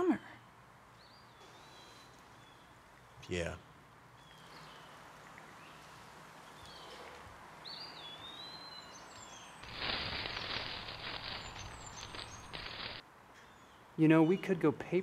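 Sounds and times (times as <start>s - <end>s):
soft forest ambience: 0.0s - 15.0s
bird chirps: 1.0s - 5.0s, 7.6s - 14.5s
costume rustling and shuffling: 9.6s - 13.0s.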